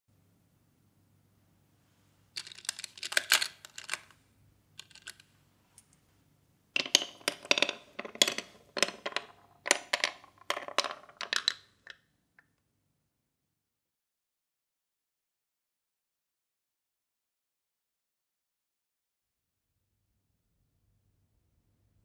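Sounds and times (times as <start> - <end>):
marbles clacking in marble run: 2.4 - 4.0, 4.8 - 5.2, 6.8 - 12.0.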